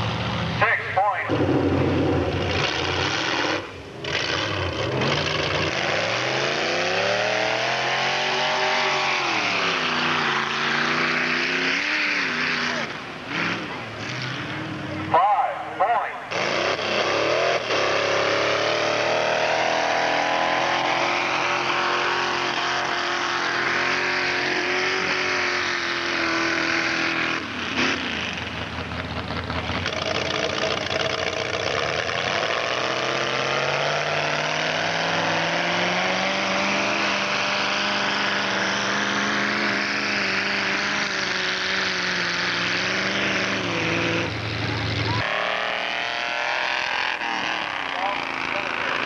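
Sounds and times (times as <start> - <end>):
truck engine revving hard: 0.0 - 49.0.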